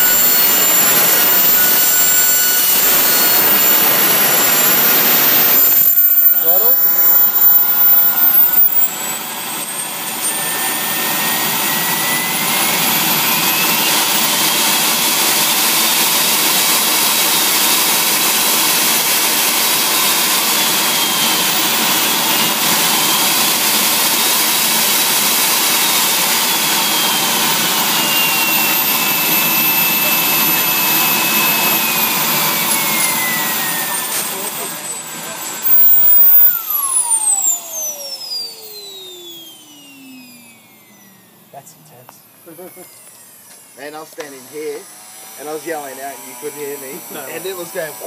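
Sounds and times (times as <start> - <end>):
exhaust rush: 0.0 - 45.6
jet turbine whine: 0.0 - 48.0.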